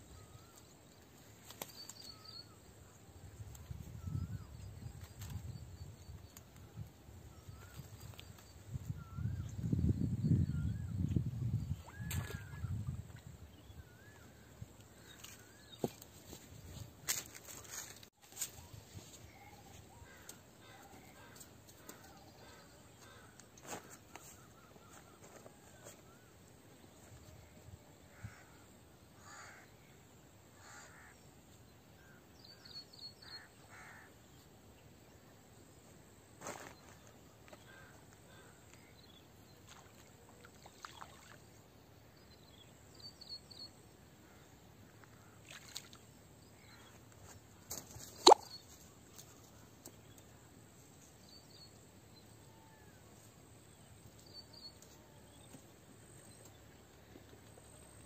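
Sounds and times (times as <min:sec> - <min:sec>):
crows cawing: 0:29.2 - 0:29.7, 0:30.6 - 0:31.2, 0:33.4 - 0:34.1.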